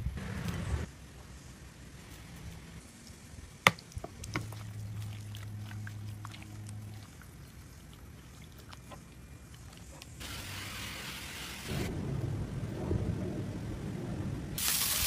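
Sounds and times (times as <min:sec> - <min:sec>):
low steady hum: 0:00.0 - 0:11.0
wet hand mixing meat: 0:03.7 - 0:10.2.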